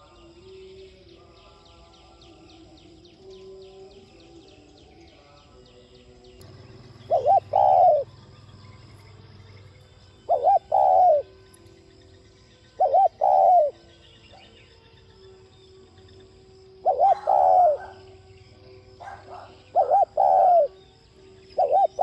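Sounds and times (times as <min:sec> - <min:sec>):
dove cooing: 0:06.4 - 0:09.1, 0:10.2 - 0:11.4, 0:12.7 - 0:14.5, 0:16.7 - 0:20.9, 0:21.5 - 0:22.0.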